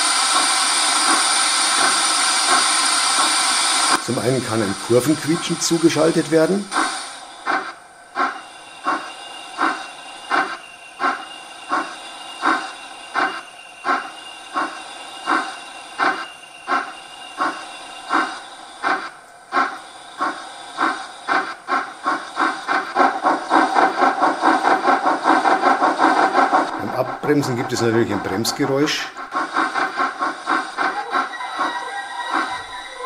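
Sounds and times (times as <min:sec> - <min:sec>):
steam locomotive chuffs: 0:00.0 - 0:33.0
thin high squeal: 0:31.0 - 0:33.0.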